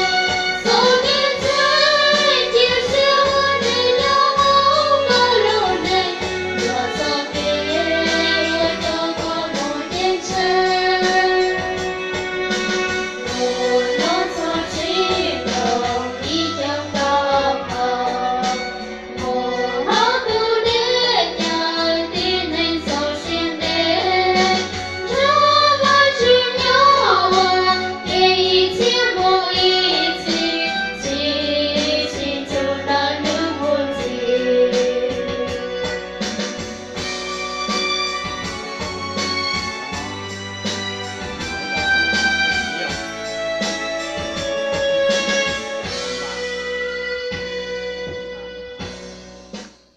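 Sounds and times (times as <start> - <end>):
women singing into microphones: 0.0 - 36.4
instrumental backing with beat: 0.0 - 49.9.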